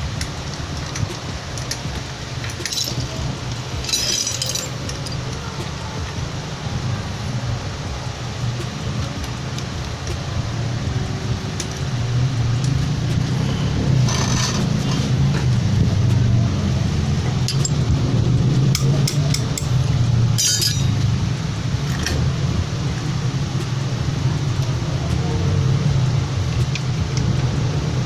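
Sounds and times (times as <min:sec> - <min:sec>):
metallic clinks of hand tools: 0:02.4 - 0:03.2, 0:03.8 - 0:05.4, 0:20.4 - 0:21.0.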